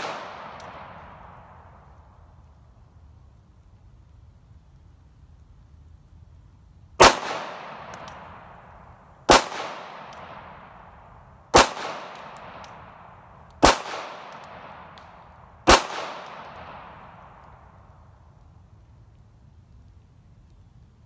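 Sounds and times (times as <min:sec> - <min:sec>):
pistol shots echoing: 0:00.0 - 0:01.3, 0:07.0 - 0:08.6, 0:09.3 - 0:10.8, 0:11.5 - 0:17.4.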